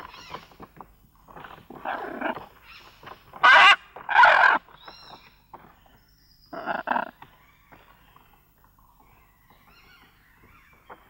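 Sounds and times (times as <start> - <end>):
loud animal calls: 3.4 - 4.6.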